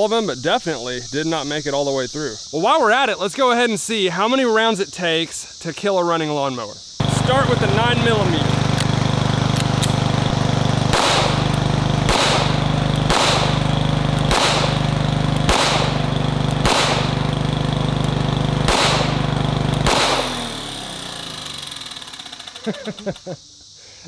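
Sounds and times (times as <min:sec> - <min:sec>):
lawnmower engine running: 0:07.0 - 0:23.3
pistol shots: 0:10.9 - 0:17.3, 0:18.6 - 0:20.4.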